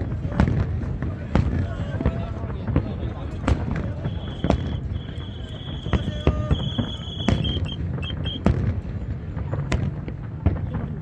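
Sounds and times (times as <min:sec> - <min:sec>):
crowd murmur: 0:00.0 - 0:11.0
fireworks bangs: 0:00.0 - 0:11.0
high whistle-like tone: 0:03.9 - 0:08.5.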